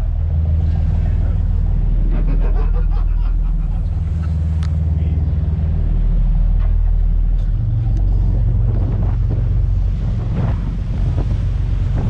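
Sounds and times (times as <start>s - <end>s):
boat engines droning: 0.0s - 12.0s
water noise: 0.0s - 12.0s
wind noise: 7.4s - 12.0s.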